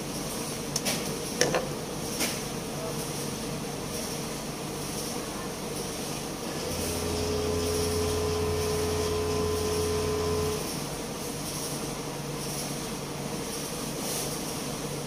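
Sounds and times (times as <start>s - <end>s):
electric motor humming and whining: 6.4s - 10.8s.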